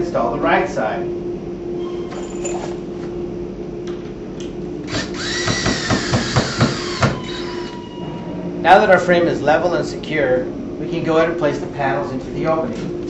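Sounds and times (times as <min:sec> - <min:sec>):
power drill motor whine: 0:04.8 - 0:08.0.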